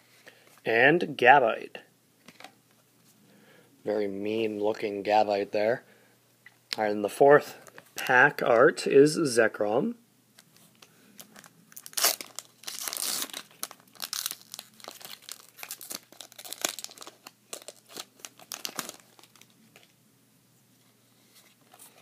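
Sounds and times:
foil wrapper crinkling and tearing: 11.2 - 19.9.

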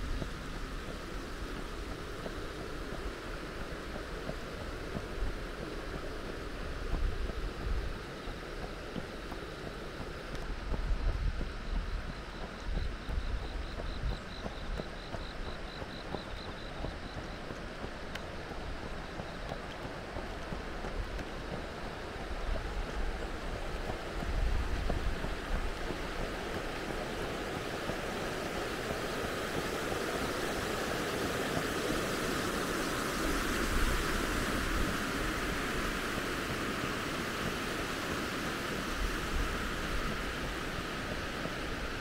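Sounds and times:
wind buffeting microphone: 0.0 - 42.0
river flowing over rocks: 17.2 - 42.0.

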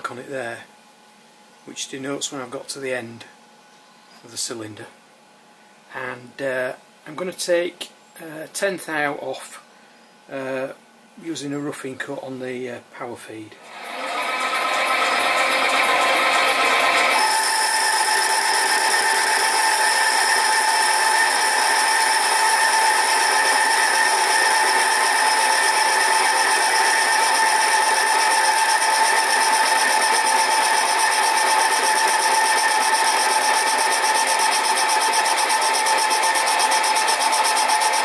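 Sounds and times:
lathe cutting metal whine: 13.7 - 38.0.

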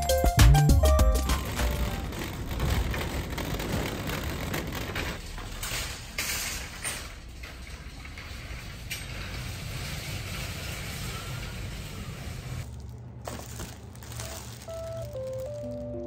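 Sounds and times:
shopping cart rattling: 0.1 - 16.0
low ambient rumble: 0.8 - 16.0.

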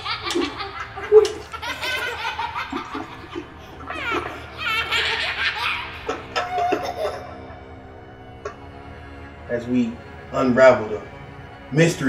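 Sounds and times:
man laughing: 0.0 - 7.4
background music tones: 0.0 - 12.0.

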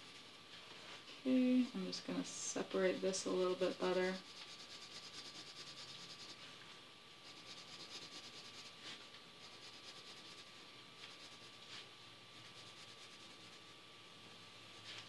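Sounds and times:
pencil scratching on paper: 4.0 - 6.4, 7.2 - 13.8.

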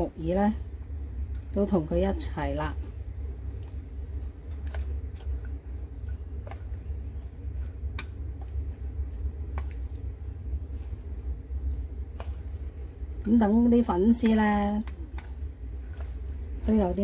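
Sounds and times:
low hum: 0.0 - 17.0
food squishing in bowl: 0.6 - 17.0.

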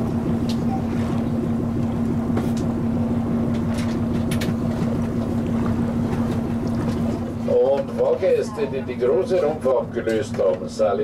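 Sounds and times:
electric boat drive humming: 0.0 - 11.0
water rumbling along hull: 0.0 - 11.0.

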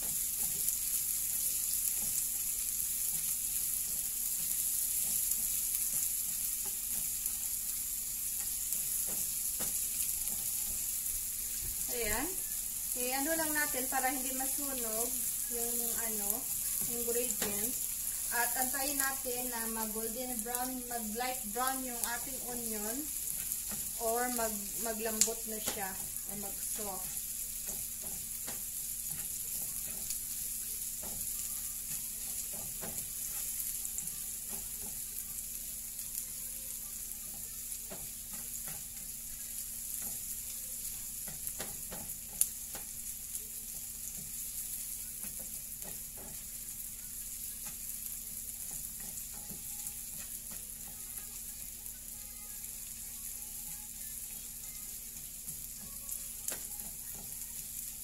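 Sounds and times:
onion sizzling in hot oil: 0.0 - 58.0
spatula scraping and tapping pan: 8.4 - 11.8, 13.4 - 20.7, 21.3 - 35.0, 37.3 - 40.3, 40.9 - 43.0, 43.7 - 46.6, 48.6 - 51.0.

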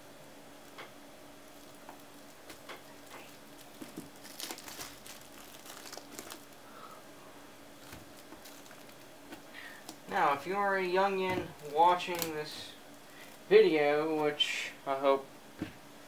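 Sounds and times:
plastic film crinkling and tearing: 1.5 - 6.7, 7.8 - 10.0, 11.6 - 13.5
knife slitting plastic wrap: 3.0 - 6.5, 11.6 - 12.4.

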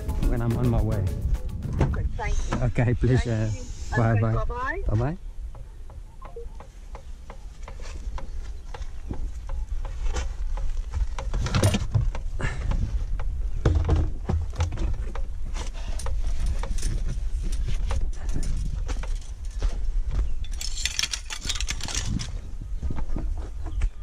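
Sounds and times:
gear clattering and rustling: 7.4 - 23.8.

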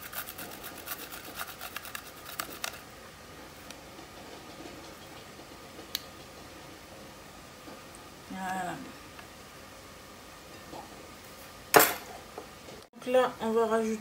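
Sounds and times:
garlic rasping on a grater: 0.0 - 2.8.

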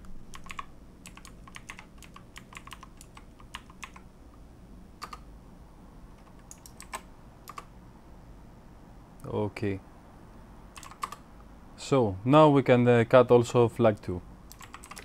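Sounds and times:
computer keyboard typing: 0.3 - 4.0, 5.0 - 5.2, 6.2 - 7.7, 10.7 - 11.2, 14.5 - 15.0.

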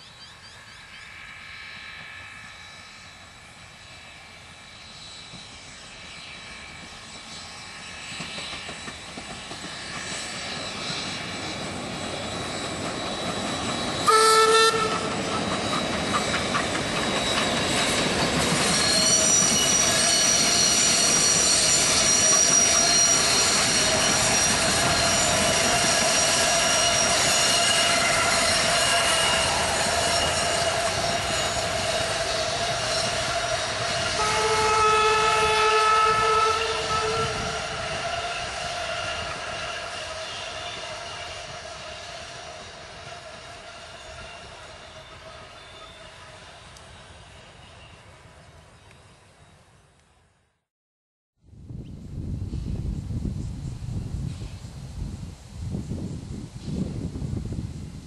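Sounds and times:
steam train approaching: 0.0 - 50.5
high-pitched wheel squeal: 9.8 - 48.1
train whistle blast: 14.0 - 15.4, 18.8 - 48.1.

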